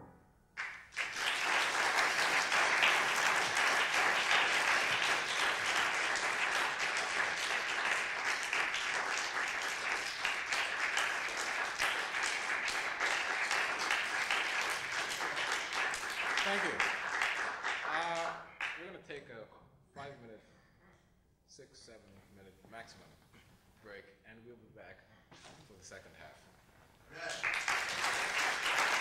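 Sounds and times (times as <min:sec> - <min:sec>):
audience applauding: 0:00.6 - 0:18.8, 0:27.1 - 0:29.0.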